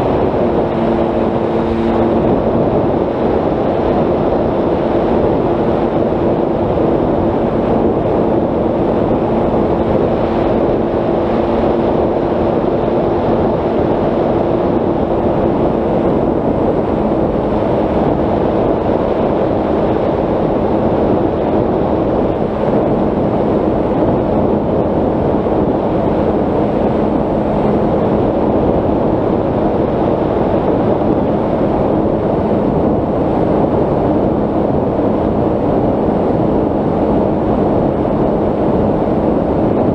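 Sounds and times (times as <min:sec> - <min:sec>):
wind noise on microphone: 0:00.0 - 0:39.9.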